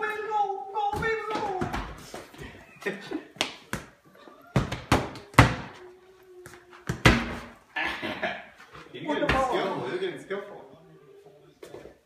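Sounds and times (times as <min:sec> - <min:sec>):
ball thudding on tiled floor: 0:00.9 - 0:02.4, 0:03.4 - 0:05.8, 0:06.4 - 0:07.6.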